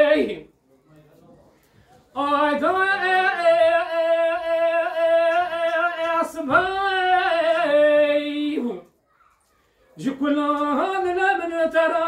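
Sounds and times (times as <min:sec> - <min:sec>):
man singing unaccompanied: 0:00.0 - 0:00.6, 0:02.1 - 0:08.9, 0:10.0 - 0:12.0.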